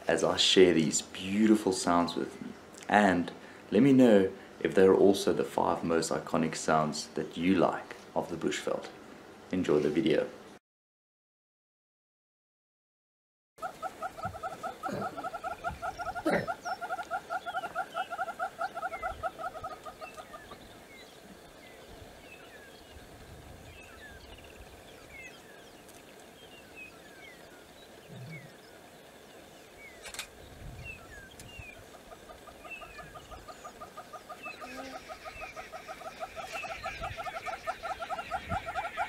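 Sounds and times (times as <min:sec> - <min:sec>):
hornbills calling: 0:13.6 - 0:22.9, 0:31.3 - 0:39.0
small birds chirping: 0:13.6 - 0:39.0
sharp click: 0:30.0 - 0:30.3.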